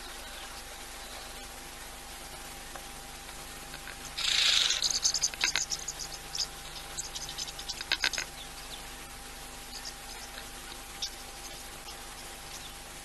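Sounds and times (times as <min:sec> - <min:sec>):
small animal chirping and clicking: 0:02.7 - 0:08.5.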